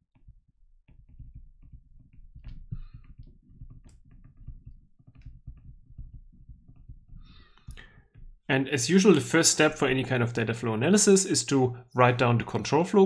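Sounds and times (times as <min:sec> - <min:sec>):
stylus tapping on tablet screen: 0:00.0 - 0:08.5.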